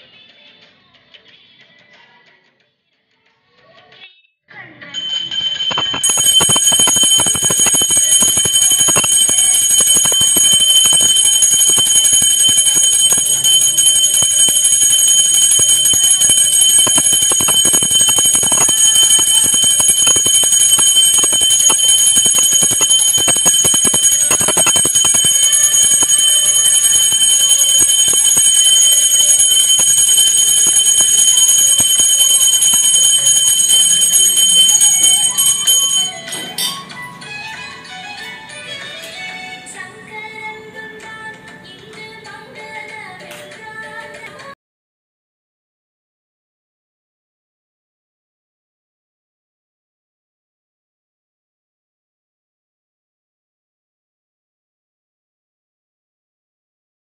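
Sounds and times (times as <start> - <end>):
hand bell ringing: 5.0 - 36.9.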